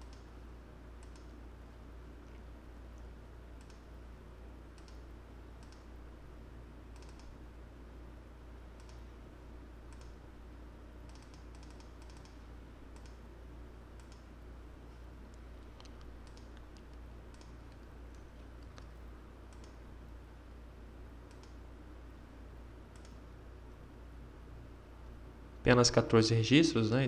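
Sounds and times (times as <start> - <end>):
steady low hum: 0.0 - 27.0
mouse and keyboard clicks: 1.0 - 1.3, 4.8 - 5.0, 5.6 - 5.9, 6.9 - 7.3, 8.8 - 9.0, 9.9 - 10.2, 11.1 - 12.4, 13.0 - 13.2, 15.7 - 19.8, 21.3 - 21.6, 22.9 - 23.2.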